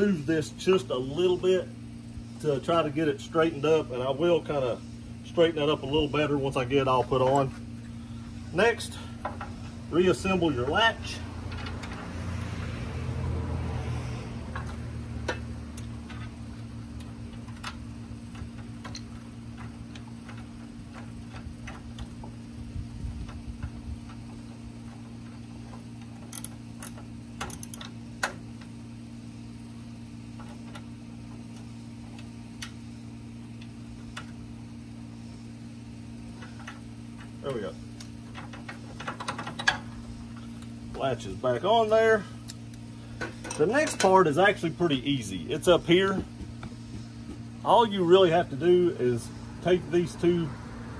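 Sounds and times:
steady low hum: 0:00.0 - 0:50.9.

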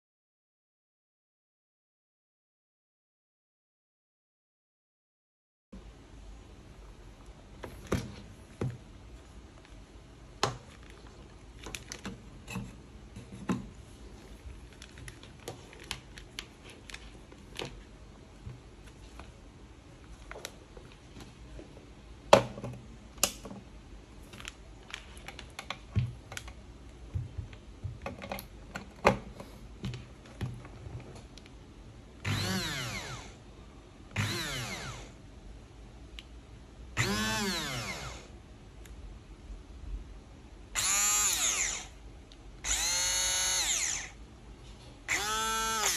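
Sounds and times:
hand blender motor whining: 0:32.2 - 0:33.3, 0:34.2 - 0:35.1, 0:37.0 - 0:38.3, 0:40.8 - 0:41.9, 0:42.6 - 0:44.2, 0:45.1 - 0:45.9.

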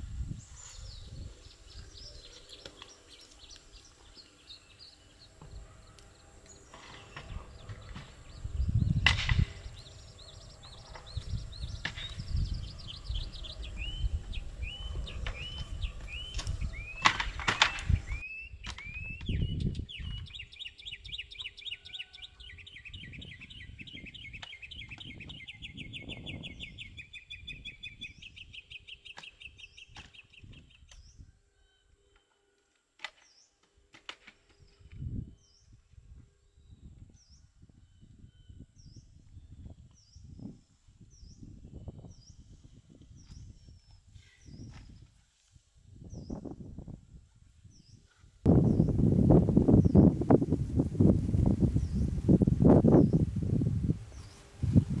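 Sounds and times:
bird chirping and trilling: 0:00.4 - 0:32.3, 0:47.7 - 0:50.3, 0:51.6 - 0:53.4.

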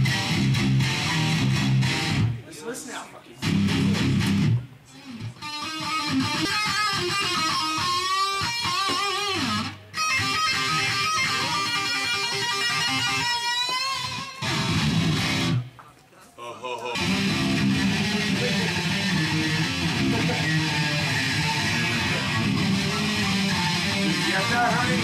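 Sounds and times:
distorted electric guitar lead: 0:00.0 - 0:02.4, 0:03.4 - 0:15.7, 0:16.8 - 0:25.0.

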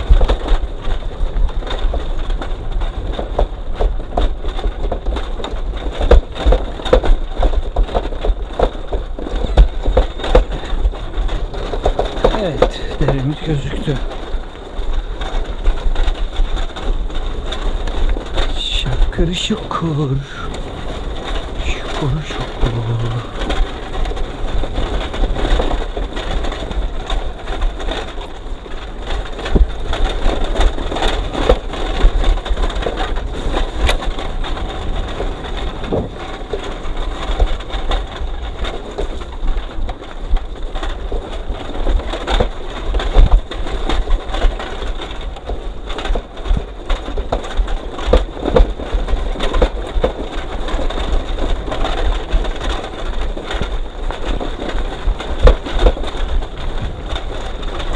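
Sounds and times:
crunching and clattering on rough track: 0:00.0 - 0:57.9
low rumble: 0:18.4 - 0:26.1.

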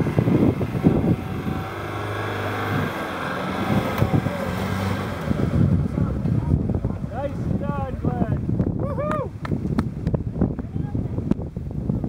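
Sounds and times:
car engine running: 0:00.0 - 0:08.7.

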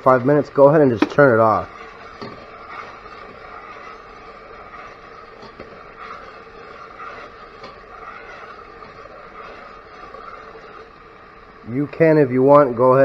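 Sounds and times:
seasonings sizzling in oil: 0:00.0 - 0:13.0.

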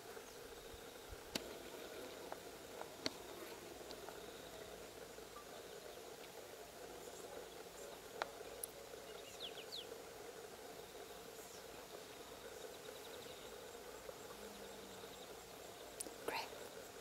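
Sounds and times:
insect hum: 0:00.0 - 0:17.0
high ticks: 0:01.3 - 0:10.1, 0:10.9 - 0:17.0
bird chirps: 0:09.0 - 0:10.0.

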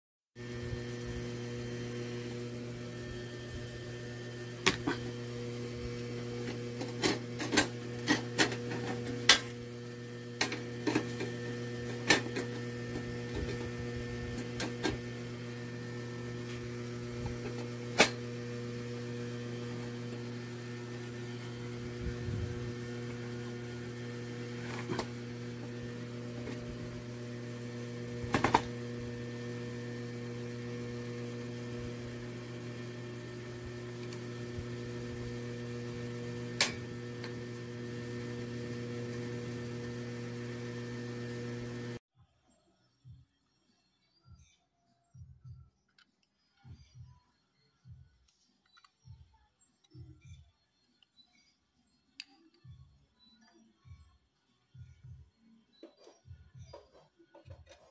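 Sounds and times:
electrical hum: 0:00.4 - 0:42.0.

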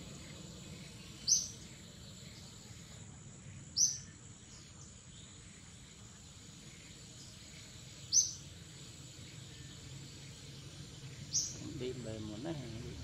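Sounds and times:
high bird chirps: 0:00.0 - 0:02.9, 0:06.7 - 0:12.4.

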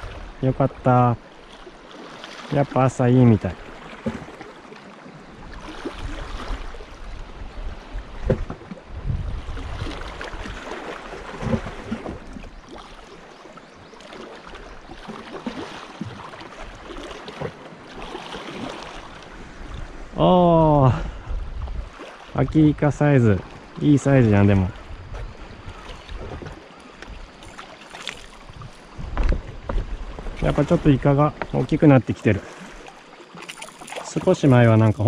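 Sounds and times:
wind buffeting microphone: 0:05.4 - 0:10.7, 0:19.3 - 0:26.6, 0:28.4 - 0:31.8.

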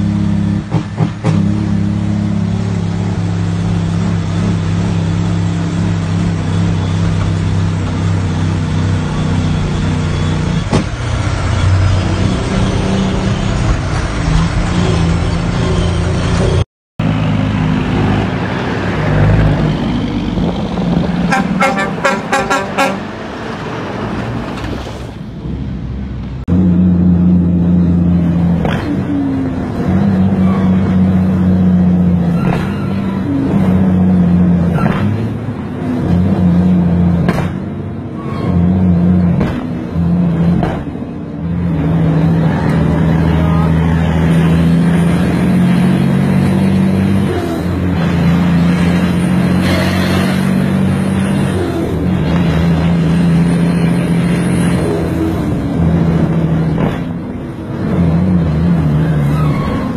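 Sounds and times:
truck horn toots: 0:21.2 - 0:23.2.

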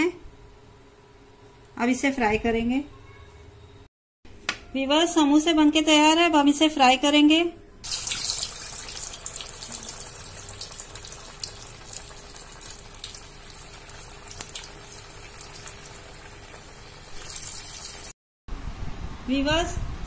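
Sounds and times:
hot oil sizzling and crackling: 0:07.8 - 0:18.2.

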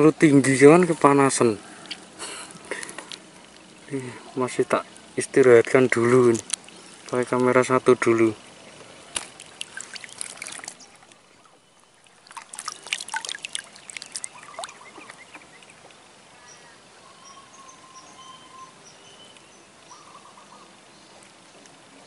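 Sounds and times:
water trickling and dripping: 0:00.0 - 0:16.3
high bird chirps: 0:12.7 - 0:15.8, 0:16.4 - 0:20.7.

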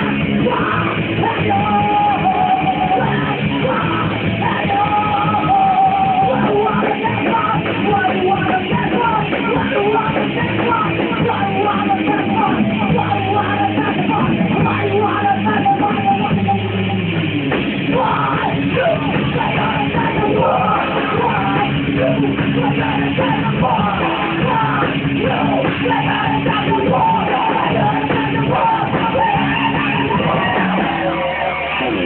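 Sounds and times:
person singing: 0:00.0 - 0:17.1, 0:17.8 - 0:32.0
bass guitar: 0:00.0 - 0:32.0
drums: 0:00.0 - 0:32.0
electric guitars: 0:00.0 - 0:32.0.

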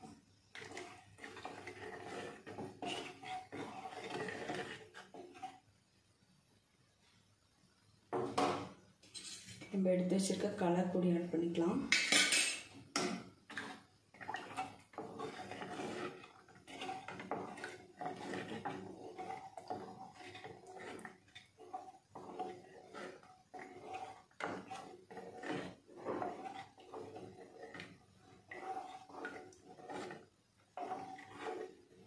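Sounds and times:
spoon scraping and knocking pot: 0:00.0 - 0:05.6, 0:08.1 - 0:09.7, 0:11.5 - 0:32.0
milk sloshing: 0:13.6 - 0:32.0.

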